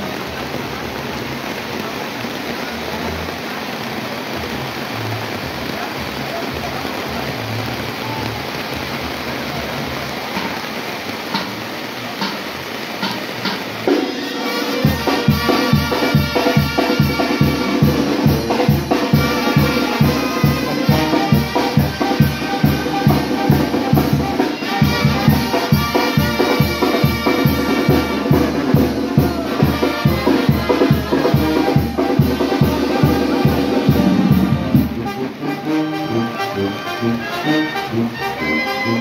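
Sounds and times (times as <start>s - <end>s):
steady drum beat: 11.3s - 11.6s, 13.0s - 35.8s.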